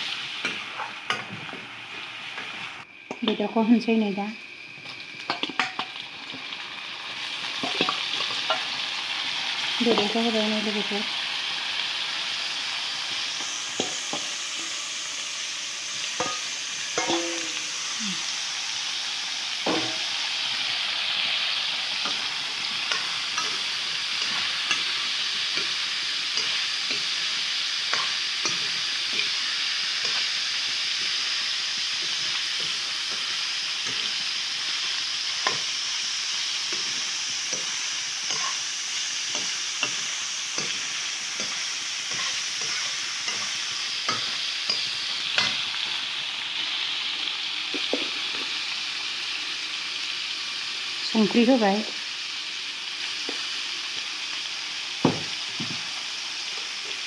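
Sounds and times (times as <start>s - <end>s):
meat sizzling in hot oil: 0.0s - 57.0s
metal ladle scraping a wok: 16.0s - 17.7s, 36.7s - 45.7s.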